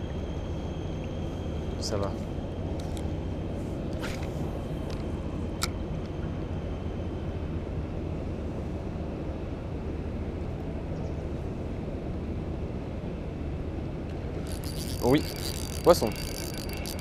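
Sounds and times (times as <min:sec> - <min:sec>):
sharp clicks: 0:14.5 - 0:17.0.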